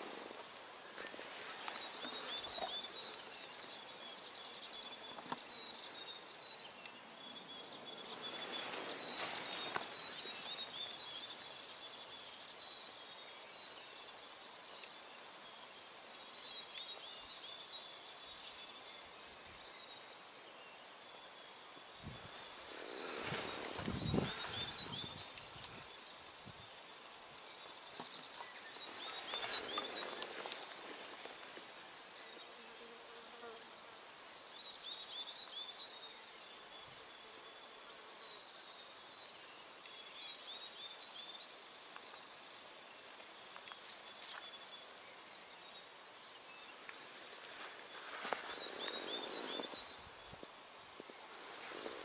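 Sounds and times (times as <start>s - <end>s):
rustling: 47.0s - 50.0s, 51.0s - 52.0s.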